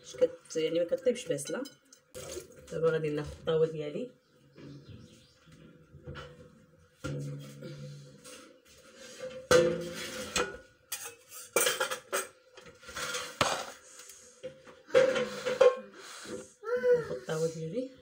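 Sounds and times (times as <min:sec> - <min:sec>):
metal cookware clanking: 0:09.2 - 0:13.8, 0:14.9 - 0:16.0.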